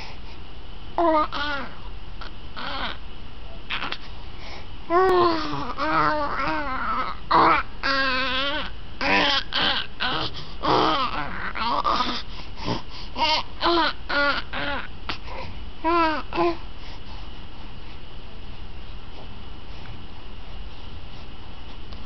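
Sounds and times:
infant babbling and cooing: 1.0s - 1.8s, 3.7s - 4.0s, 4.9s - 12.2s, 13.2s - 14.9s, 15.8s - 16.6s.

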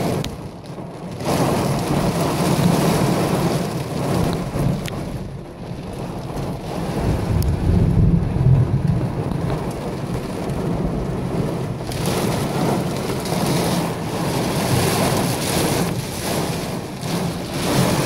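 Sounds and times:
heavy rain and hail on pavement: 0.0s - 18.0s
steady low rumble: 3.8s - 15.0s.

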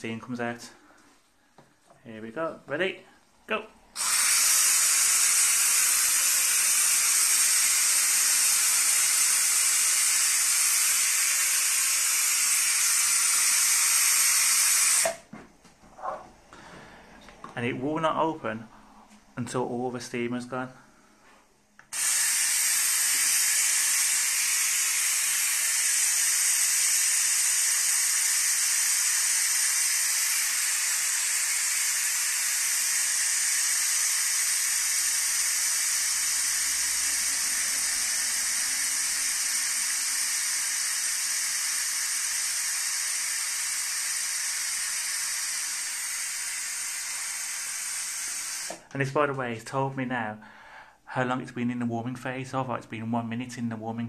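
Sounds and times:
steam hissing from valve: 3.8s - 15.3s, 21.8s - 48.9s.

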